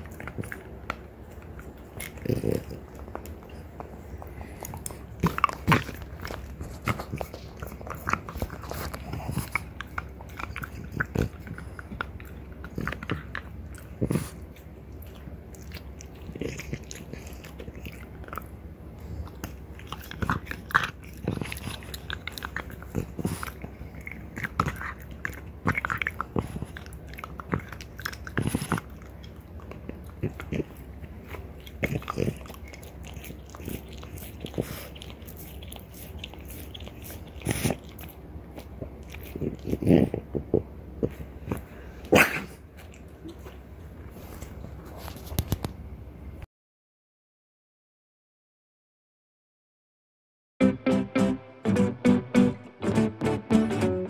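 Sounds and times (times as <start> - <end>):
dog gnawing antler: 0.0 - 41.7.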